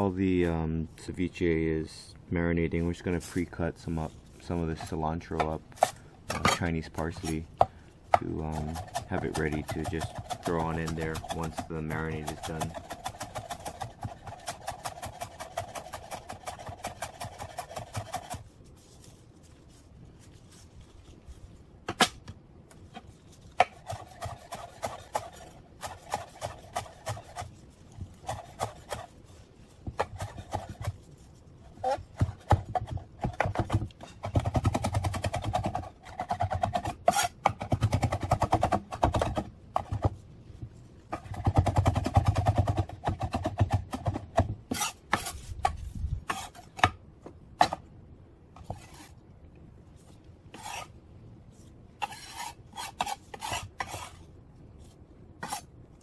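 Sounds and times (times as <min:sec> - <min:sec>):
knife chopping on wooden board: 0:31.8 - 0:40.2, 0:41.1 - 0:47.0, 0:47.6 - 0:47.8.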